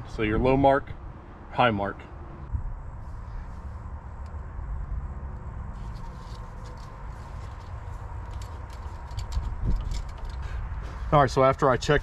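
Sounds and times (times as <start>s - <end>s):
steady low rumble: 2.2s - 12.0s
dipstick clicking and scraping: 5.8s - 11.0s.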